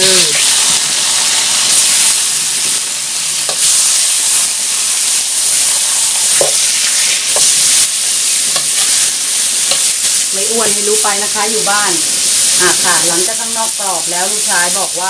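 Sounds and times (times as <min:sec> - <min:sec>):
beef sizzling in hot wok: 0:00.0 - 0:15.0.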